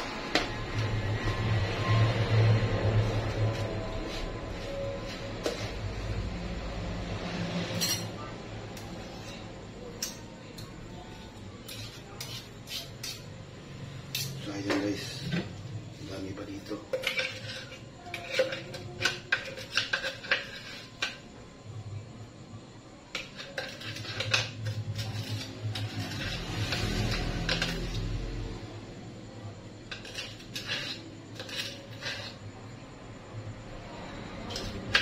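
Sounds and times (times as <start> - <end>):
metal kitchenware clinking and scraping: 7.2 - 13.4, 14.0 - 21.4, 23.1 - 28.3, 29.9 - 32.8, 33.9 - 35.0.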